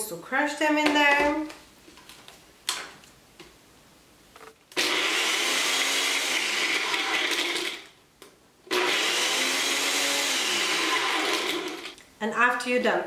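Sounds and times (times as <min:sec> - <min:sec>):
blender grinding: 0:04.7 - 0:08.0, 0:08.7 - 0:12.0.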